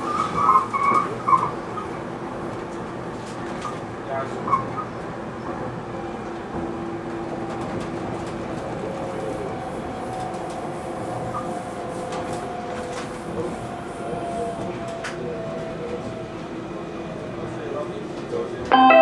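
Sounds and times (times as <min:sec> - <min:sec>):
wheels rumbling on rails: 0:00.0 - 0:18.7
train whining tones: 0:18.7 - 0:19.0.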